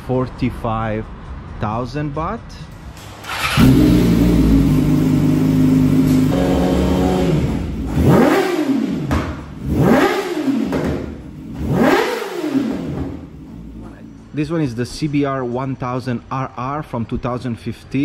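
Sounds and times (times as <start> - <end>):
motorcycle engine idling and revving: 2.8 - 14.4.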